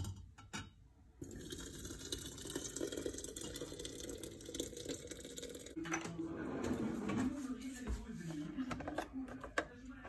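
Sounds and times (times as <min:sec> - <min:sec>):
liquid pouring into jug: 0:01.2 - 0:05.8.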